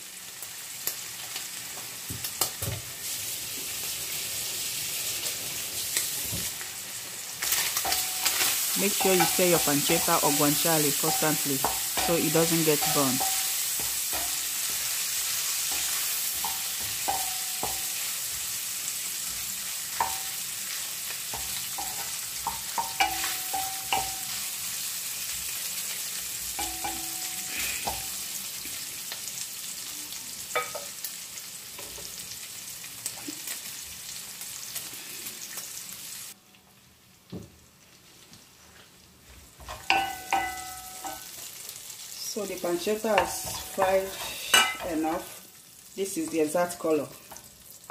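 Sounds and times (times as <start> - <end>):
meat sizzling in oil: 0.0 - 47.9
wooden spoon scraping a pan: 42.9 - 45.4.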